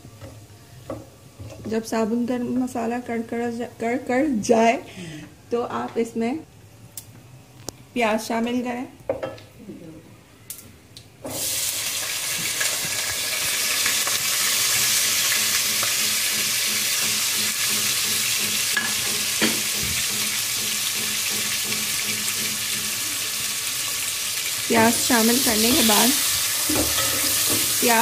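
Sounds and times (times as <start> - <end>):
onions sizzling in oil: 11.3 - 28.0.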